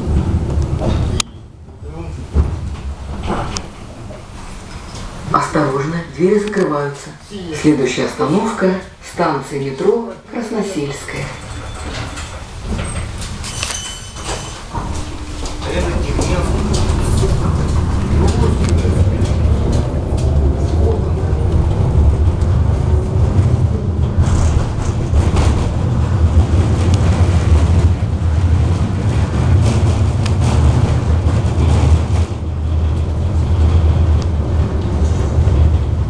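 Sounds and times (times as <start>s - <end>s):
tram running rumble: 0.0s - 36.0s
knocks and rattles: 11.3s - 36.0s.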